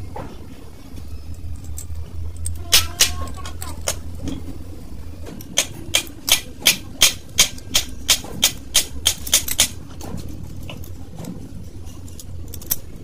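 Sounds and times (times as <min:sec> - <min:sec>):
hand ratchet clicking: 0:05.4 - 0:09.8.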